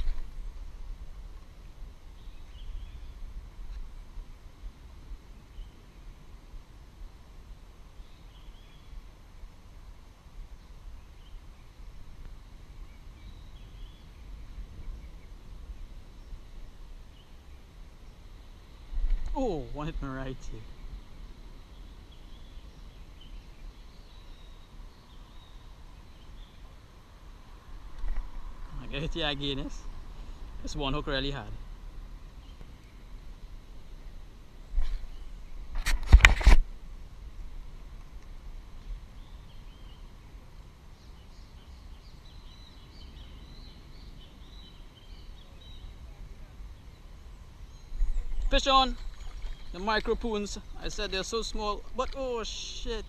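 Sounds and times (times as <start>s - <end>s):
birds chirping: 1.4s - 4.1s, 10.6s - 35.8s, 38.8s - 53.0s
faint bird chirps: 2.1s - 3.8s, 39.0s - 53.0s.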